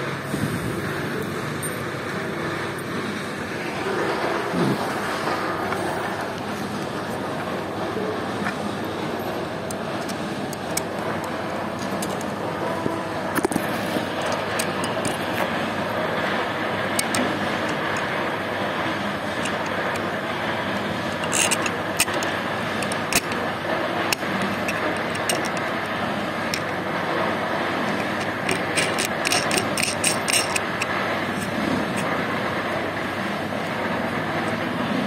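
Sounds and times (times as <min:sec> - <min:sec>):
metallic clicks and taps: 0:21.2 - 0:23.4, 0:28.0 - 0:32.1.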